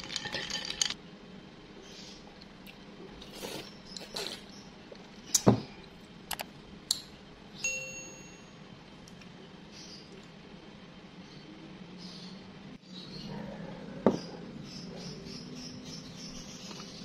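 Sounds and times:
notification bell ding: 7.7 - 8.6.

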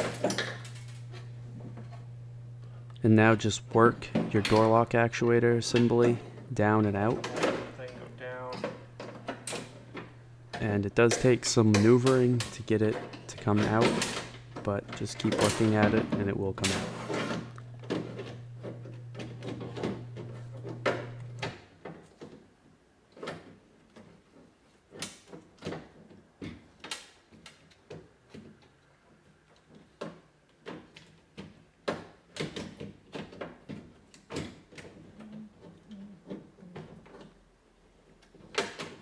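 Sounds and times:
steady low hum: 0.0 - 21.4.

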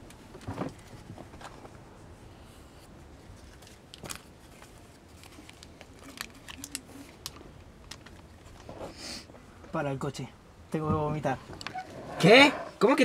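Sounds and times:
small clicks and rustles: 3.2 - 9.0.

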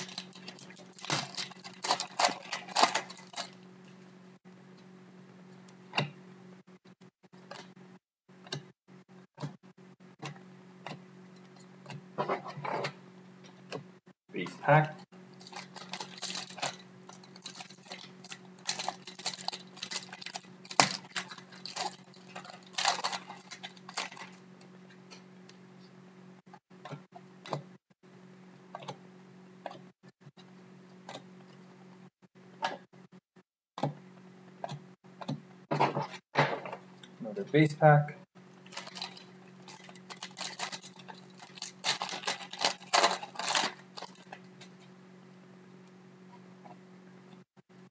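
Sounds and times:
foil wrapper crinkling and tearing: 0.0 - 3.6, 15.3 - 24.4, 38.6 - 44.8.

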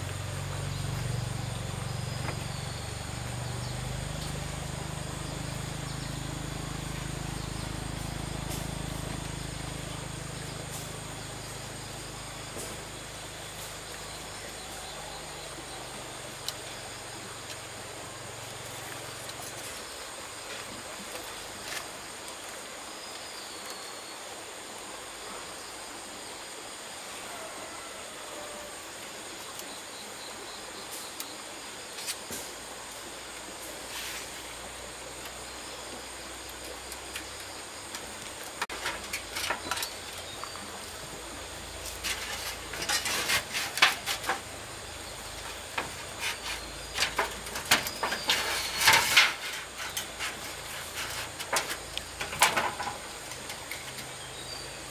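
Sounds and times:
steady outdoor hiss: 0.0 - 54.9
light knocks and scrapes: 41.8 - 54.2.

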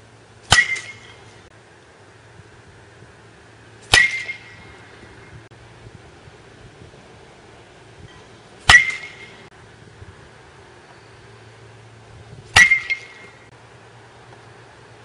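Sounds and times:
baseball bat striking ball: 0.4 - 1.5, 3.8 - 4.8, 8.6 - 9.5, 12.5 - 13.5.

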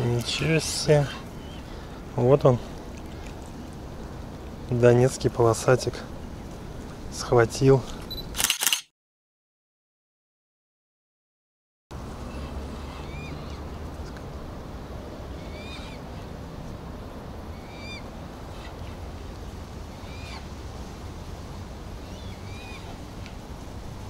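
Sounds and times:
bird calling: 0.0 - 3.6, 12.2 - 14.2, 15.3 - 16.3, 17.5 - 19.1, 19.9 - 20.6, 22.0 - 23.0
steady low rumble: 0.0 - 8.2.

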